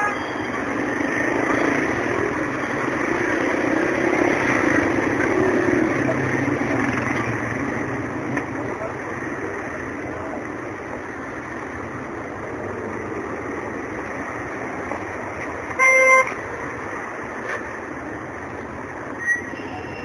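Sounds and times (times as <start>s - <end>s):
vehicle horn beep: 0.0s - 0.5s, 15.8s - 16.4s, 19.2s - 20.0s
street traffic noise: 0.0s - 20.0s.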